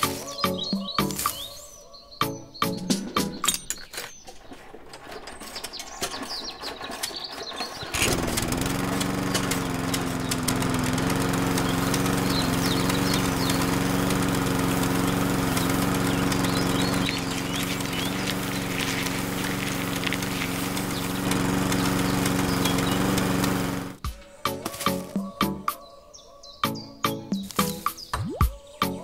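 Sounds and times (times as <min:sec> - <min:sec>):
birds chirping: 0:00.0 - 0:29.0
small motor humming: 0:06.4 - 0:24.0.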